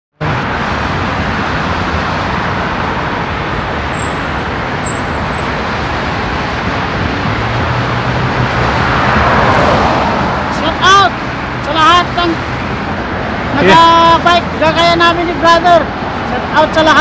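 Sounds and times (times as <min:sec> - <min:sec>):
road traffic rush: 0:00.1 - 0:17.0
vehicle passing close: 0:00.2 - 0:11.7.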